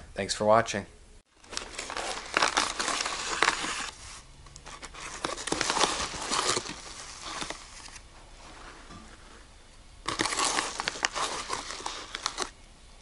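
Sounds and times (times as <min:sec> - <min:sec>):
padded envelope crinkling: 0:01.4 - 0:08.8, 0:10.0 - 0:12.6.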